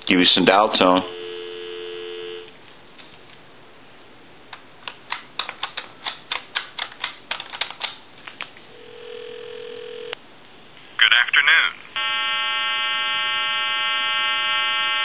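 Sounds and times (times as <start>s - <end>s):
telephone ringing tone: 1.0s - 2.5s, 8.8s - 10.2s, 12.0s - 15.0s
telephone dial tone: 1.1s - 2.5s, 8.8s - 10.2s.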